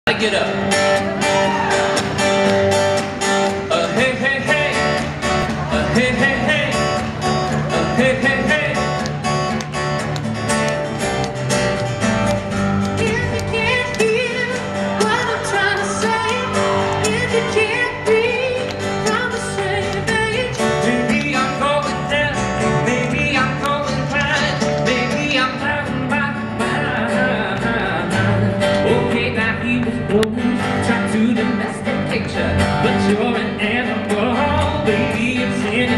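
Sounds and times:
live country music: 0.1 - 35.9
person singing: 3.5 - 9.1, 12.8 - 35.9.

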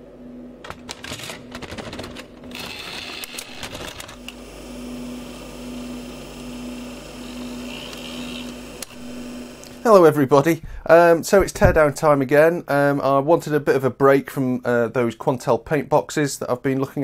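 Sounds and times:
tape mechanism clicks and clatter: 0.6 - 4.4
motor humming with pulses: 2.4 - 9.9
brief whir: 7.2 - 9.8.

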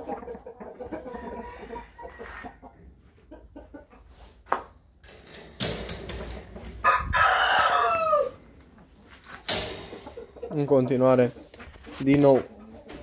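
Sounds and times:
hens clucking: 0.0 - 5.0, 6.0 - 13.0
rooster crowing: 6.8 - 8.4.

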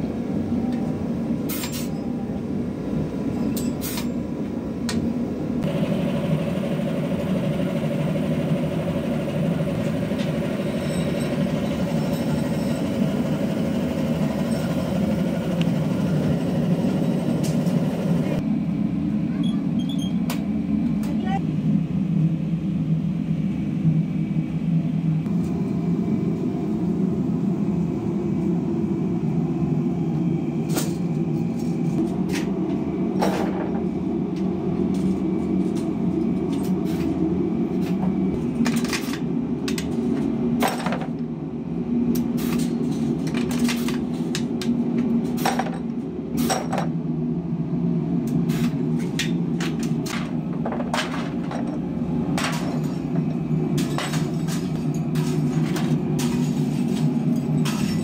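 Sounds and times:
machine hum: 5.5 - 19.3.

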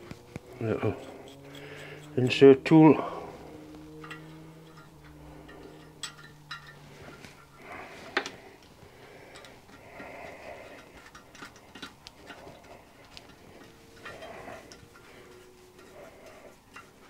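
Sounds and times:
light scraping of hand tool: 0.0 - 3.6, 9.3 - 17.0.

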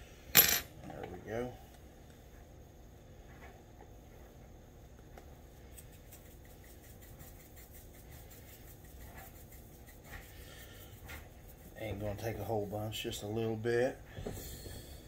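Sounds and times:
container ticking and scratching: 5.7 - 13.0.

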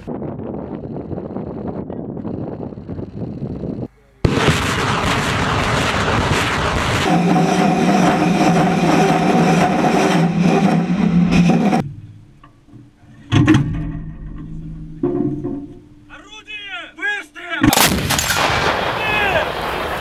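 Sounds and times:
rockets launching roar: 4.2 - 10.3, 17.7 - 20.0
loud bang: 17.6 - 19.8.

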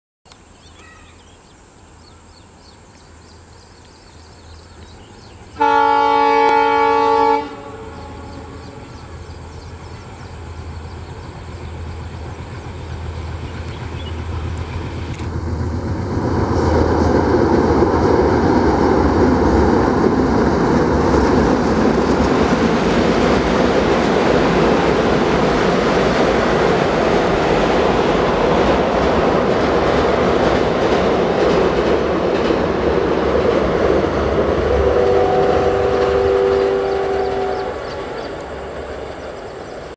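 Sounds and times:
diesel locomotive engine drone: 1.7 - 39.9
train horn: 5.6 - 9.0, 34.6 - 38.3
train wheels clattering on viaduct: 8.2 - 39.9.

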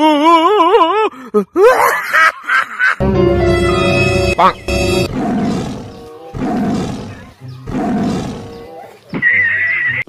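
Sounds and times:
high wavering tone: 3.0 - 5.1
rough drawn-out roars: 4.9 - 8.7.

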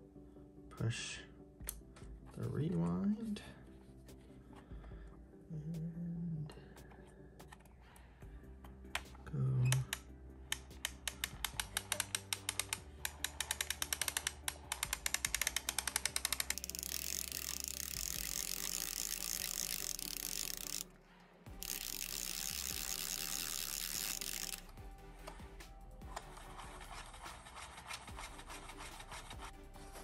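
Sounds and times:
film camera rewind crank ratcheting: 10.5 - 20.9, 21.5 - 24.8
continuous rasp of rewinding film: 10.8 - 20.9, 21.5 - 30.0.

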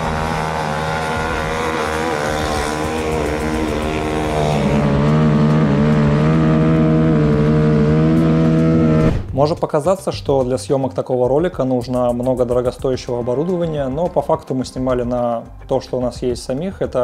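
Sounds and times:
dirt bike engine high revs: 0.0 - 9.1.

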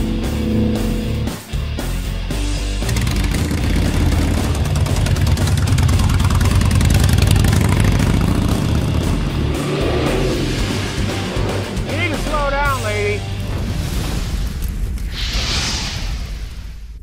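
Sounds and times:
rock music: 0.0 - 14.0
motorcycle engine revving past: 2.7 - 12.3.

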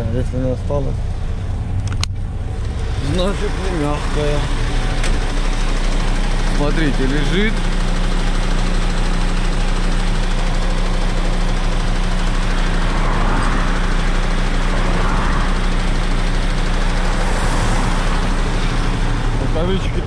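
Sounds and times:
diesel truck engine droning: 0.0 - 20.0
faint rushing: 11.6 - 20.0.

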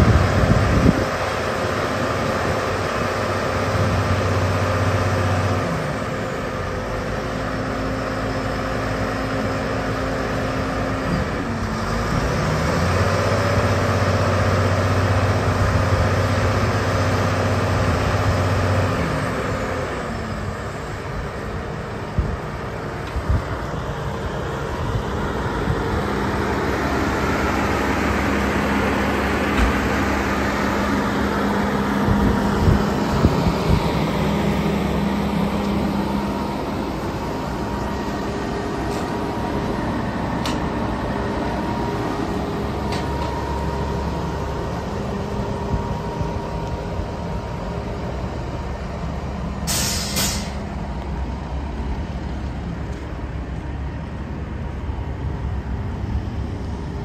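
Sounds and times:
diesel engine idling: 0.0 - 57.0
air hiss: 49.6 - 50.6.

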